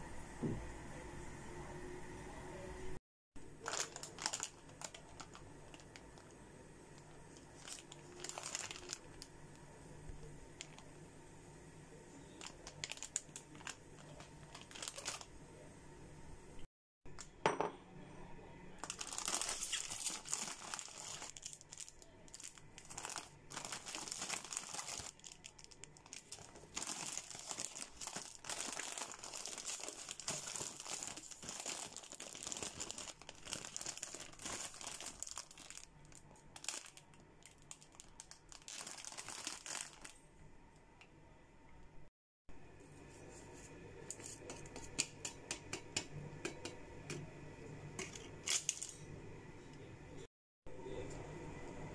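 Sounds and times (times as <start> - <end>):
plastic packet crinkling: 3.5 - 9.6, 10.5 - 10.9, 12.4 - 15.3, 18.8 - 40.2, 48.0 - 49.0.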